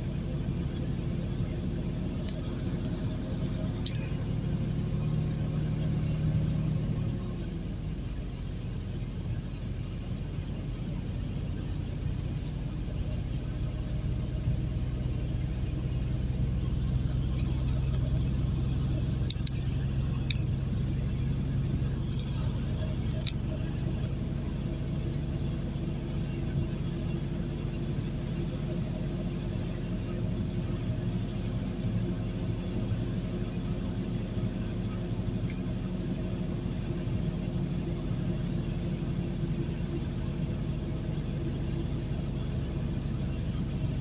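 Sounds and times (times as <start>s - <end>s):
road noise: 0.0s - 44.0s
truck engine drone: 0.0s - 44.0s
light ticks: 19.2s - 20.5s, 35.4s - 35.6s.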